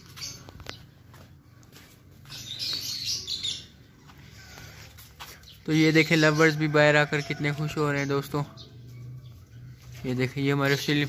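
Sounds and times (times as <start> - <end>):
parrots chirping and chattering: 0.0 - 11.0.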